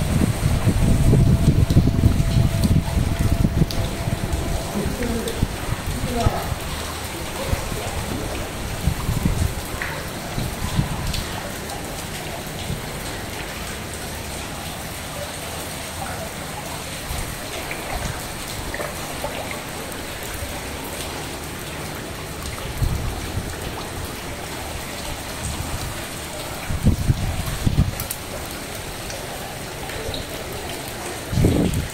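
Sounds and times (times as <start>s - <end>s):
rain falling on water: 0.0s - 31.9s
drip ticks: 0.6s - 7.5s, 8.2s - 15.6s, 16.6s - 31.9s.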